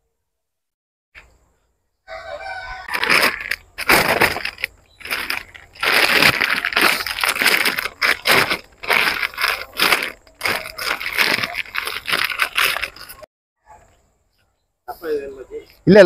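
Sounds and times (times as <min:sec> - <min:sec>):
rooster crowing: 0:02.0 - 0:03.4.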